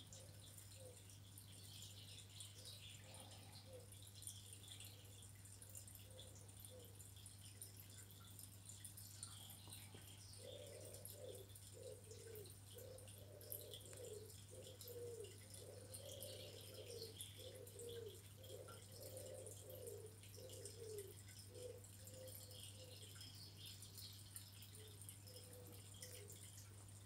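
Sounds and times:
faint low cooing call: 10.4s - 23.0s.

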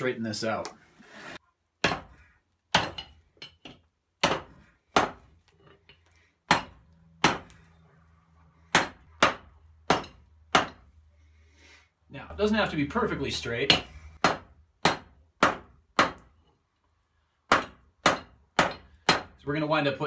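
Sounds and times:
hammer striking metal on anvil: 8.7s - 10.9s, 17.5s - 19.4s.

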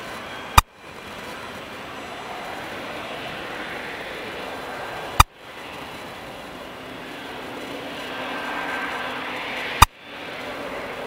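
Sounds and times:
jet engines taxiing: 0.0s - 11.0s.

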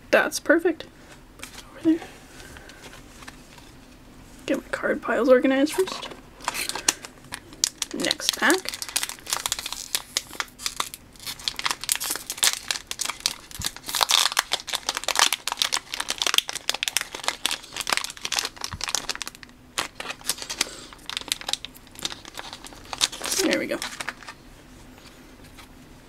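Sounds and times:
foil pack crinkling: 5.8s - 24.4s.

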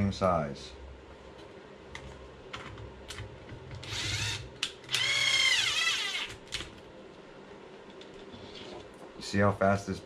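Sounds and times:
power screwdriver motor whine: 3.8s - 6.3s.

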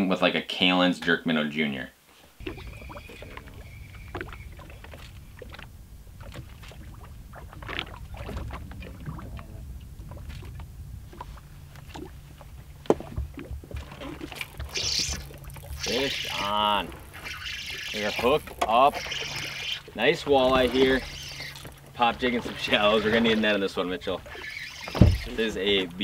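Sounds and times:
water lapping at boat hull: 2.3s - 26.0s
low rumble: 2.4s - 19.0s.

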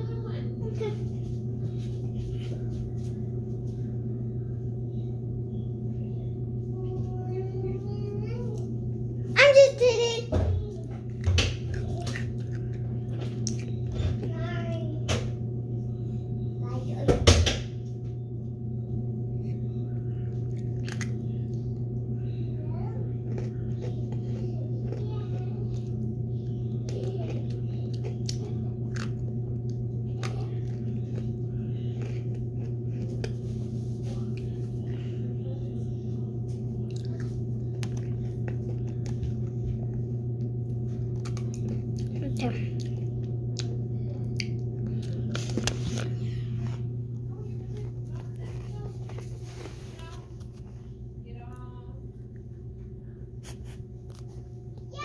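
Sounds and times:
ceiling fan motor humming: 0.0s - 55.0s
chewing cookie: 10.8s - 14.3s, 19.8s - 35.0s, 36.6s - 46.8s.

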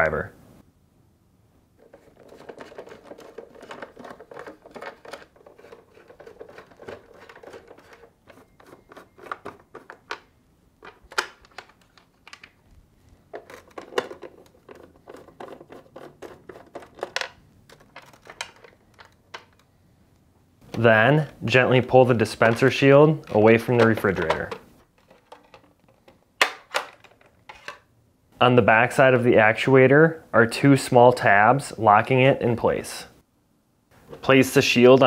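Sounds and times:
nut driver clicking and scraping: 1.8s - 12.4s.

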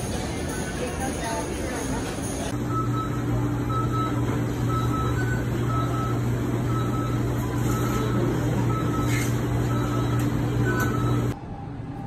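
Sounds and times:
low machine hum: 0.0s - 12.0s
high-pitched electronic beeps: 2.5s - 11.4s.

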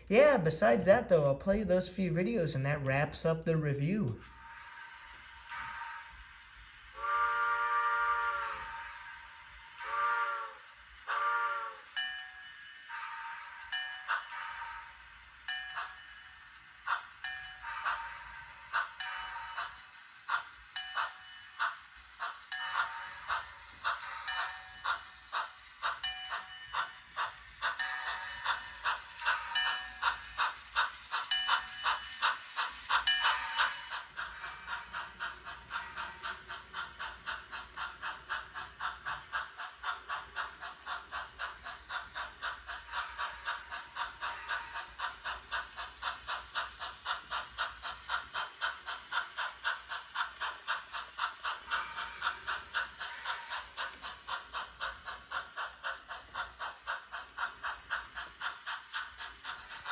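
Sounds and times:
light steam hiss: 0.0s - 59.9s
model steam locomotive chuffing: 0.0s - 59.9s.

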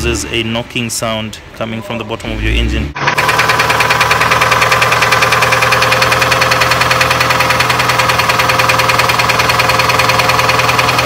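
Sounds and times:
engine running with rhythmic knocking: 3.0s - 11.0s.

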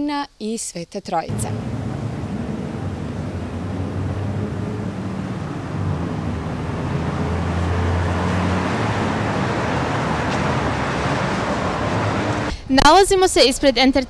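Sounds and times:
cars driving past: 1.3s - 12.5s.

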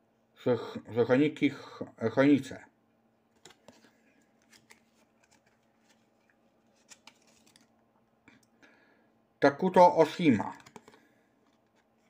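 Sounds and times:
trading cards clicking and rubbing: 3.4s - 7.7s, 10.5s - 11.9s.

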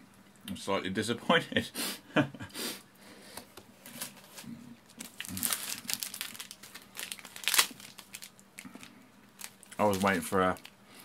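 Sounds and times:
plastic wrapper crinkling: 3.8s - 10.8s.

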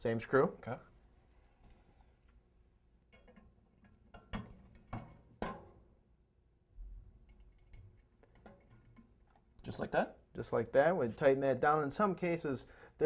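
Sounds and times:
faint metallic clicks and taps: 7.2s - 9.7s.

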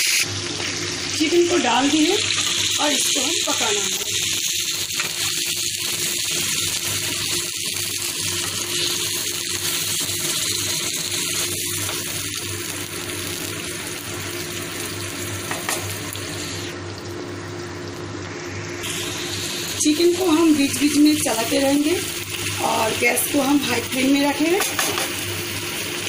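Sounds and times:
chicken sizzling in hot oil: 0.0s - 26.0s.

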